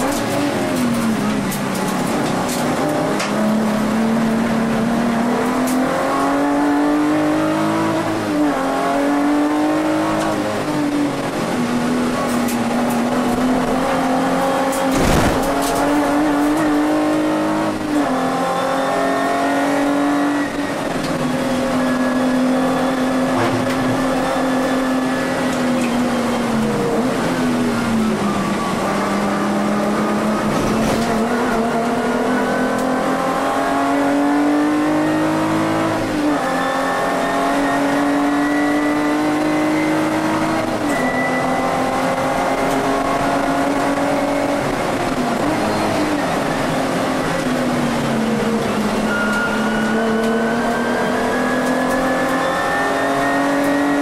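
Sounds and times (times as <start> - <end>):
car engine revving: 0.0 - 54.0
thump: 14.9 - 15.6.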